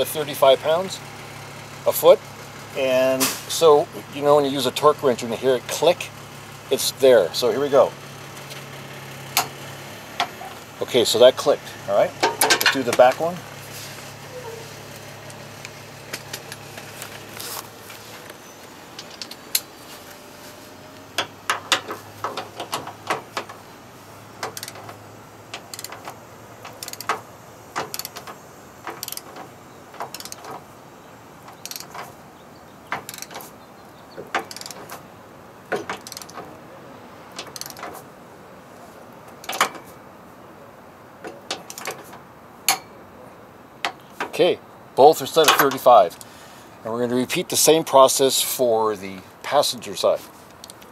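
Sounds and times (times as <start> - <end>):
torque wrench clicking: 24.4 - 30.6, 31.5 - 32.1, 32.9 - 33.5, 34.2 - 35.0, 35.8 - 36.5, 37.4 - 37.9, 50.6 - 50.9.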